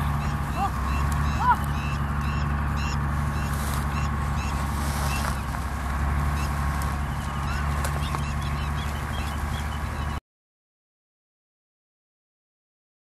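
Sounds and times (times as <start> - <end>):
engine droning: 0.0 - 10.2
small birds chirping: 0.0 - 10.2.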